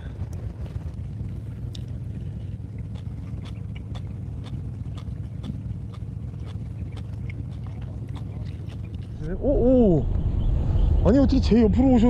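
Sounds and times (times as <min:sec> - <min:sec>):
boat engine low rumble: 0:00.0 - 0:12.0.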